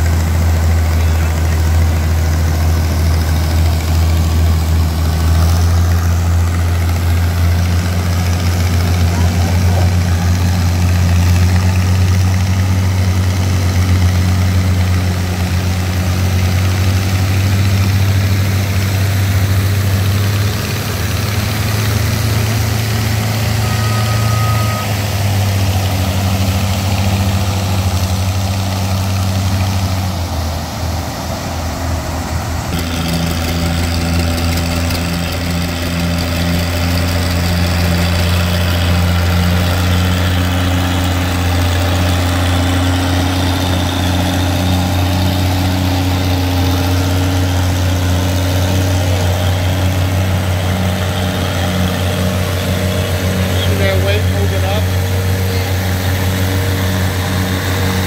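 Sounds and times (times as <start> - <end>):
tractor engine steady beat: 0.0 - 58.0
tractor engines under load: 0.0 - 58.0.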